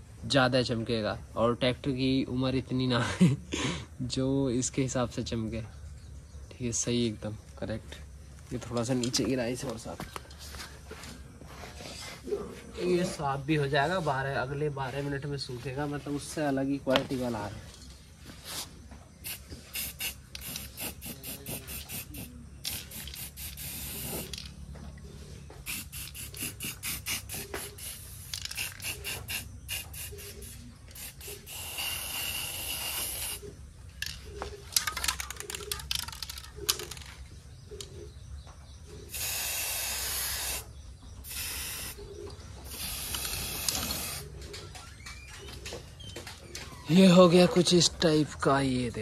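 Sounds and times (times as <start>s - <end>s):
aerosol spray can hissing: 19.2s - 24.6s, 25.6s - 33.4s, 39.1s - 42.0s, 42.7s - 44.4s.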